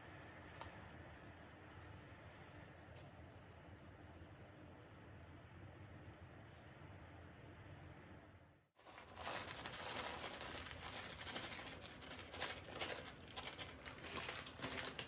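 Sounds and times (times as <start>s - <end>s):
plastic bag crinkling: 8.8s - 15.0s.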